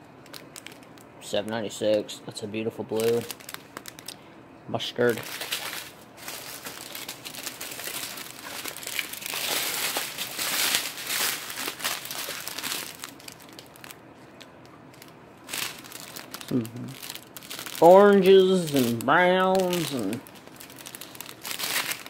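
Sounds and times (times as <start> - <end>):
plastic bags crinkling: 0.2 - 2.0, 2.9 - 4.2, 5.0 - 22.0.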